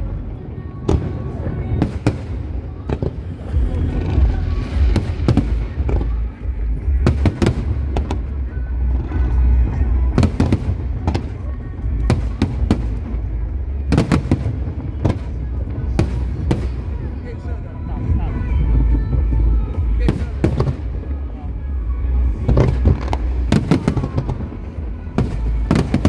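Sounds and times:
deep rumble: 0.0s - 26.0s.

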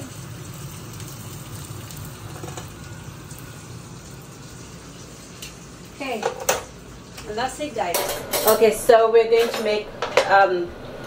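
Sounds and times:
fish sizzling in frying pan: 0.0s - 9.1s.

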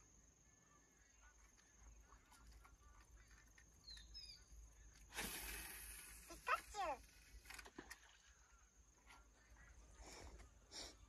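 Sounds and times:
faint high bird chirps: 0.0s - 5.0s
soft hiss: 5.0s - 7.5s.

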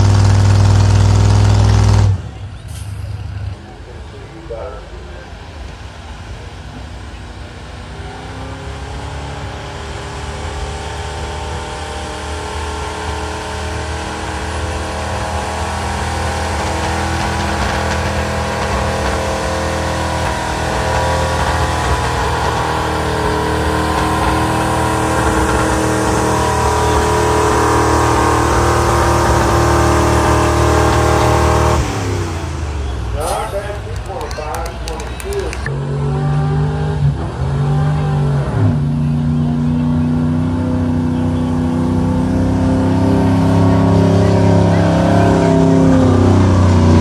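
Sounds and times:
truck engine under heavy load: 0.0s - 47.0s.

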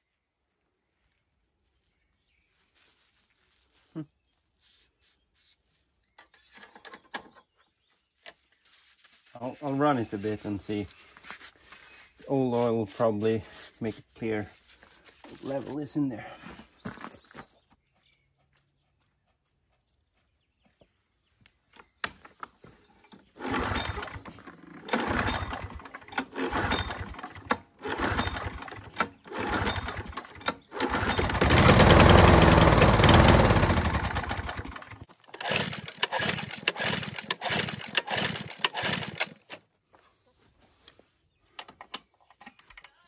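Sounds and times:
starter cord pulls: 21.8s - 39.6s
lawn mower engine running: 22.3s - 39.6s.

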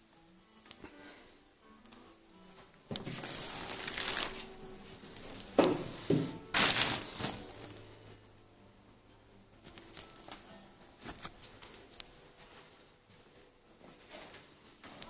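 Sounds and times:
plastic sheet crinkling: 3.0s - 7.9s.

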